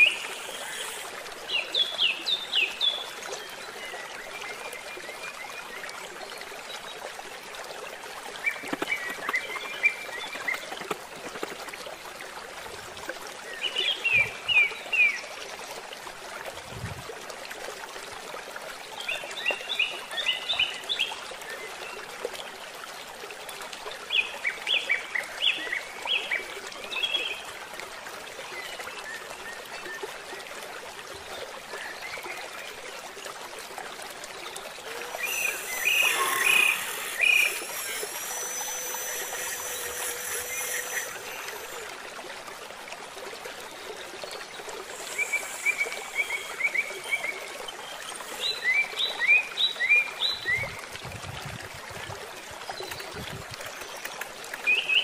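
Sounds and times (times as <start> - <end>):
steady hiss: 0.0 - 1.4, 34.9 - 42.0, 44.8 - 49.4
high buzz: 34.9 - 41.9, 44.9 - 47.4.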